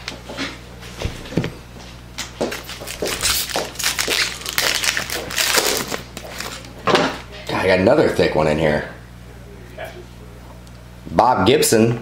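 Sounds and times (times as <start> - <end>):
foil wrapper crinkling: 2.5 - 6.7.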